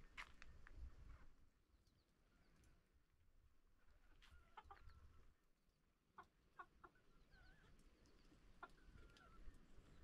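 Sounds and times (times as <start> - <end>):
chickens clucking: 4.4 - 5.0, 6.1 - 7.8, 8.5 - 9.5.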